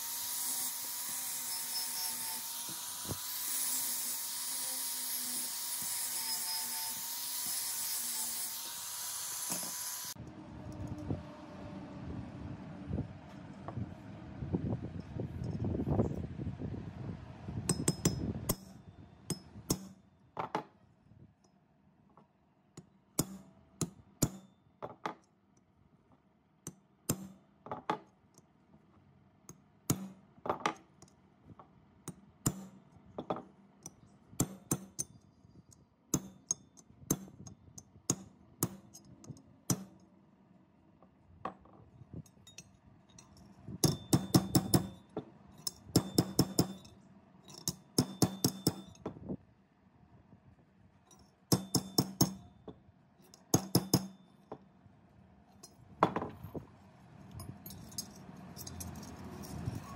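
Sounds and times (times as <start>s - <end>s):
hammer striking metal saw blade: 0.0s - 10.1s, 17.7s - 20.0s, 23.2s - 24.5s, 26.7s - 27.4s, 29.9s - 30.2s, 32.1s - 32.8s, 34.4s - 35.1s, 36.1s - 37.5s, 38.1s - 39.1s, 39.7s - 40.0s, 43.8s - 49.0s, 51.5s - 52.5s, 53.3s - 54.2s
low rumbling noise: 10.2s - 17.7s.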